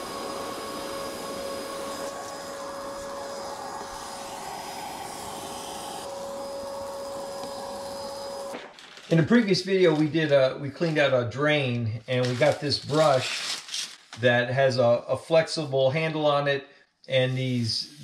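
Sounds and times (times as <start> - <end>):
vacuum cleaner whining: 0.0 - 8.9.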